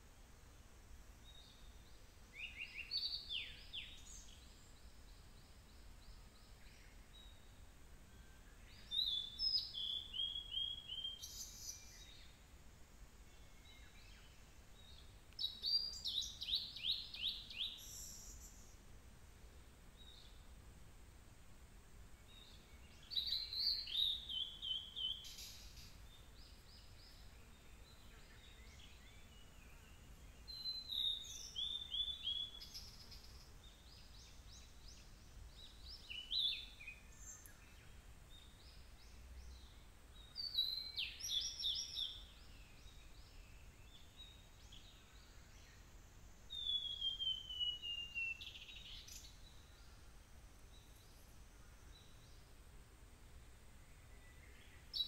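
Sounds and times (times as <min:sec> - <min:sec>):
bird singing whistled phrases: 0:46.6 - 0:49.3.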